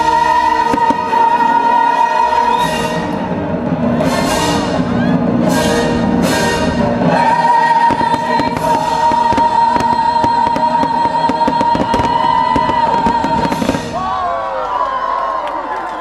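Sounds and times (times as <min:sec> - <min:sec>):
crowd cheering and whistling: 0:00.0 - 0:16.0
orchestral and choral music: 0:00.0 - 0:16.0
fireworks cracking and bursting: 0:00.3 - 0:01.4, 0:07.3 - 0:14.4.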